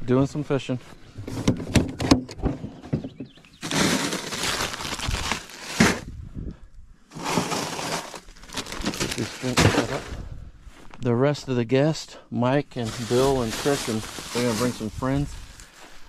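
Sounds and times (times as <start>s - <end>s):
ice cubes clattering into cooler: 3.6s - 6.0s, 7.2s - 10.0s, 12.9s - 14.9s.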